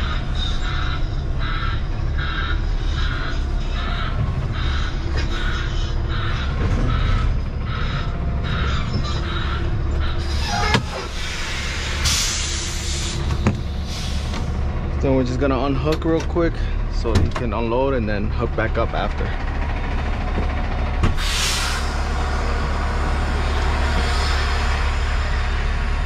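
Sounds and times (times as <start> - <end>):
diesel truck engine running: 0.0 - 26.0
air brake hiss: 10.3 - 14.4, 21.2 - 22.5.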